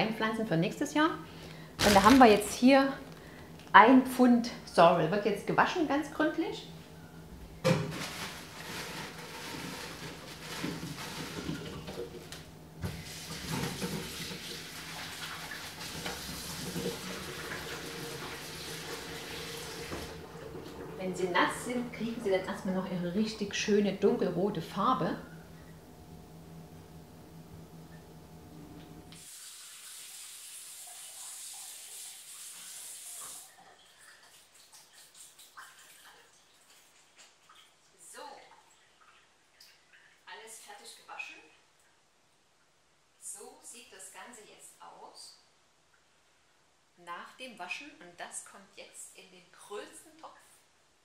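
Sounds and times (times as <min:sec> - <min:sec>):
tap running into sink: 0:10.5 - 0:20.9.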